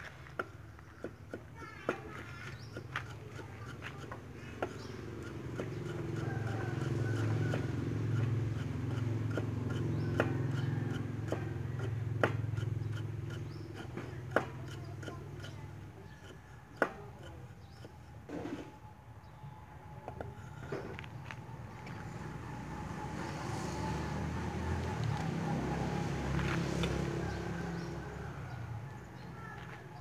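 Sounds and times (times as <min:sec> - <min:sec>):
cleaver knocking on wooden board: 0:08.9 - 0:18.7.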